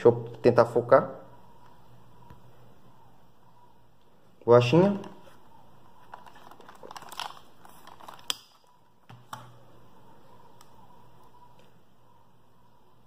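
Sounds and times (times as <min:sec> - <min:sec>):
headphones handling rustles: 0:04.9 - 0:09.4.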